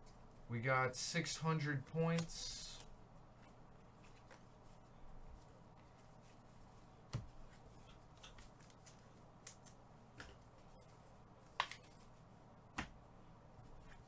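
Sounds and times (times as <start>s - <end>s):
cards clicking and tapping: 11.5s - 12.0s.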